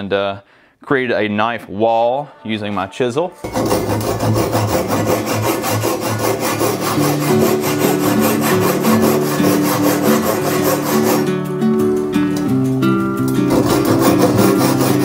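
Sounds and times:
background music with plucked notes: 1.4s - 15.0s
hand saw cutting timber: 3.4s - 11.3s, 13.5s - 15.0s.

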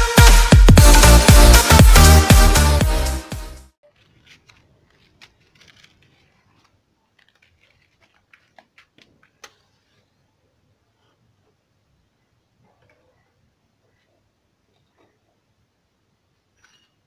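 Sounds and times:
electronic dance music: 0.0s - 3.7s.

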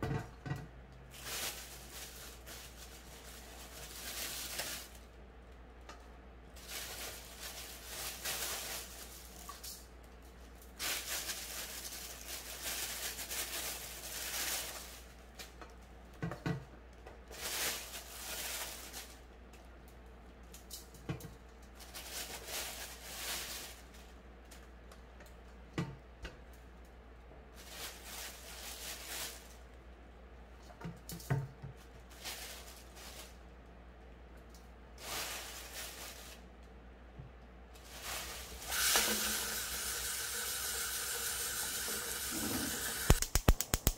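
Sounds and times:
mushrooms rustling in plastic bag: 1.1s - 5.2s, 6.5s - 9.7s, 10.7s - 15.5s, 17.3s - 19.3s, 21.7s - 24.2s, 27.5s - 29.7s, 32.0s - 33.6s, 35.0s - 36.5s, 37.8s - 39.9s.

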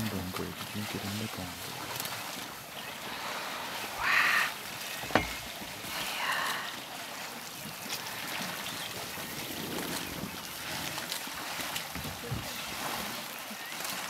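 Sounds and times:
water sloshing and splashing: 0.0s - 14.0s
elephant call: 2.8s - 5.3s.

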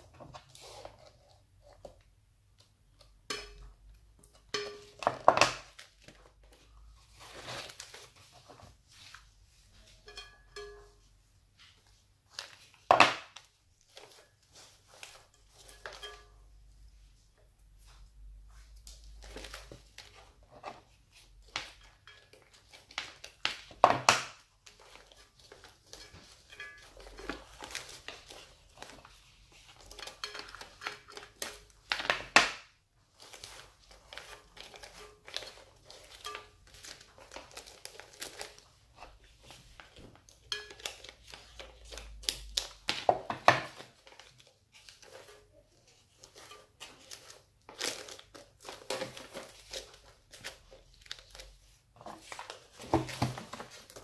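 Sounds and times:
wrapping paper crinkling: 5.5s - 9.2s, 33.0s - 54.0s.

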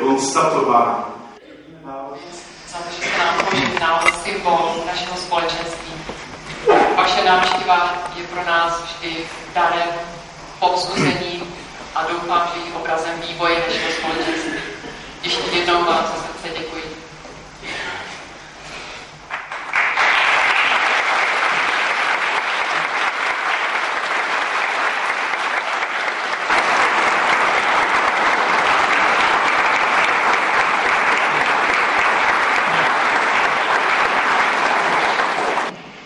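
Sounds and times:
congregation applauding: 2.8s - 8.5s, 19.2s - 35.8s.

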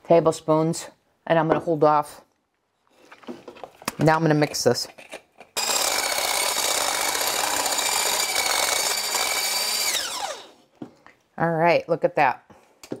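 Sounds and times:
immersion blender whipping cream: 5.6s - 10.6s.

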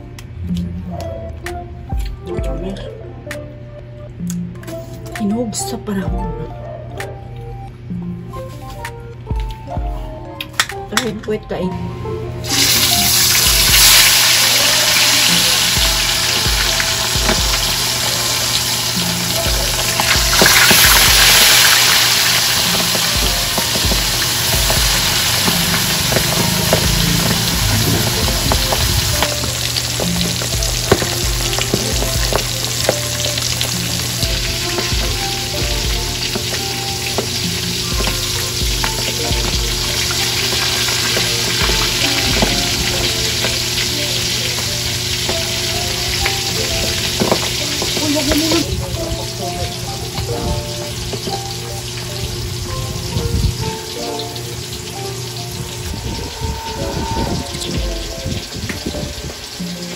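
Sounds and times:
fish frying in hot oil: 12.4s - 59.9s.

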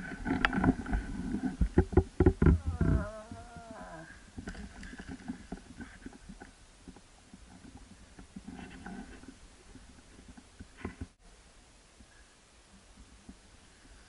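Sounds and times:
rustling and crackling in brush: 0.0s - 11.2s
moose grunts: 2.6s - 4.2s.

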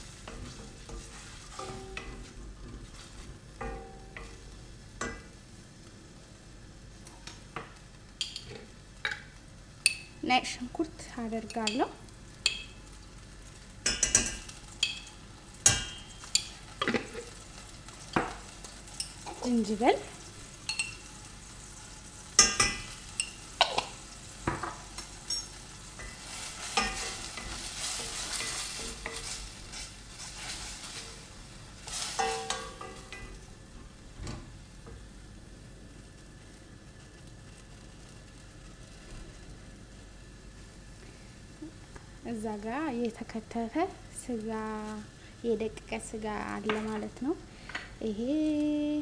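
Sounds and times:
wooden spoon stirring: 0.0s - 5.2s, 22.4s - 33.4s
onions frying in oil: 0.0s - 49.0s.

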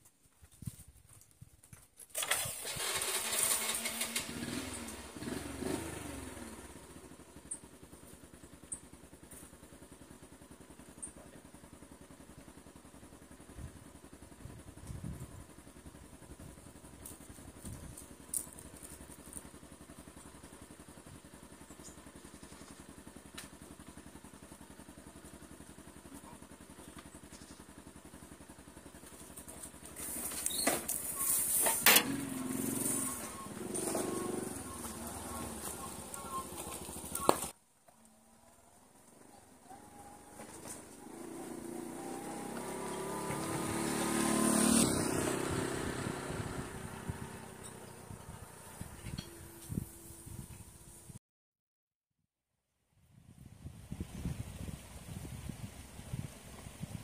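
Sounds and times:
small motorcycle engine revving: 2.2s - 9.6s, 13.2s - 37.6s, 39.0s - 51.2s.

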